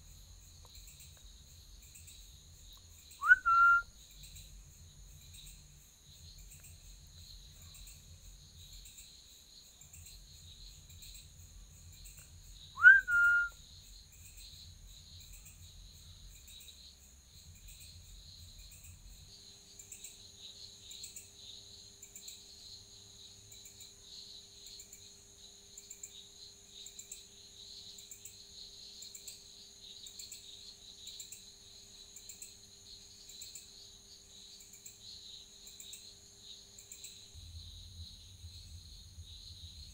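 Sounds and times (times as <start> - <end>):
insects chirping: 0.0 - 39.9
whistle-like call: 3.2 - 3.9, 12.8 - 13.6
faint low hum: 36.9 - 39.9.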